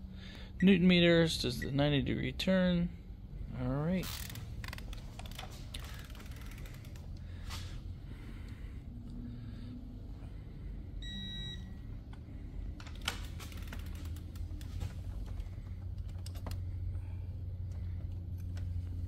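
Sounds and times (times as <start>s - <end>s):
steady low hum: 0.0s - 19.0s
short electronic beep: 11.0s - 11.8s.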